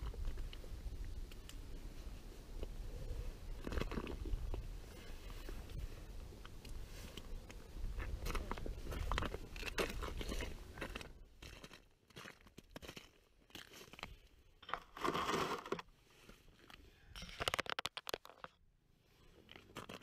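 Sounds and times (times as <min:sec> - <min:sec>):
wind rumble on microphone: 0:00.0 - 0:11.2.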